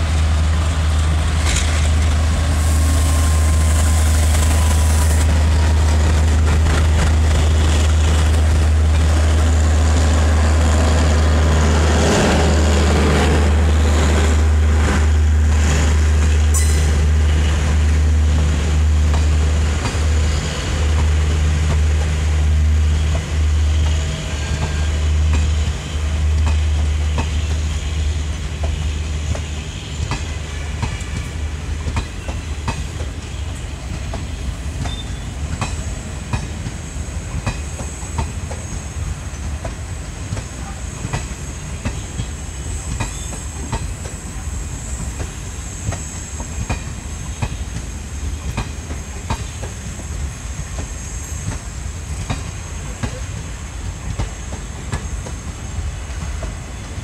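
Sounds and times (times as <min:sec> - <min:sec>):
train wheels clattering over rail joints: 0:01.0 - 0:11.2, 0:28.5 - 0:57.0.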